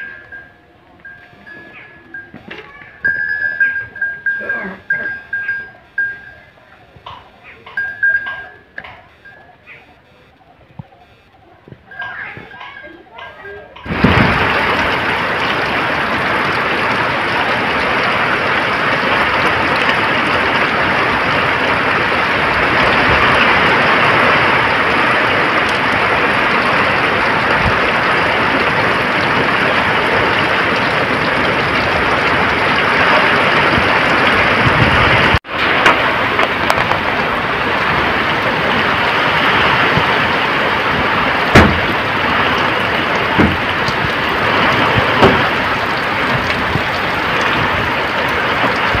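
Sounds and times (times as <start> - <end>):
heavy rain pouring: 0.0 - 9.7, 11.4 - 49.0
sharp knocks: 41.5 - 42.0, 43.4 - 43.6.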